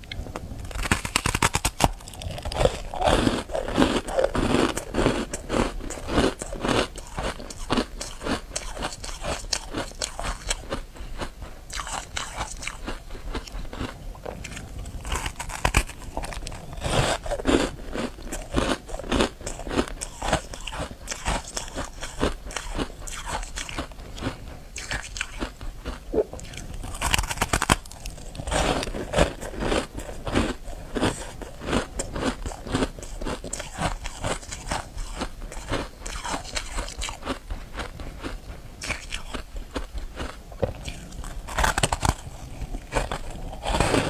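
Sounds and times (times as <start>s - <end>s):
ice crunching between teeth: 0.0s - 44.0s.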